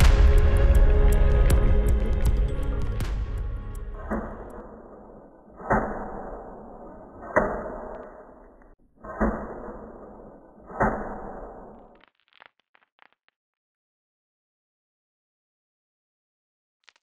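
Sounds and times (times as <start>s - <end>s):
heavy echoing thuds: 0.0s - 11.7s.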